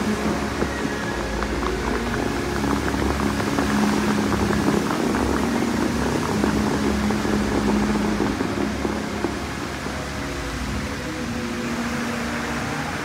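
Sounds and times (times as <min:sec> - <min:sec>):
fountain water jets spraying: 0:00.0 - 0:13.0.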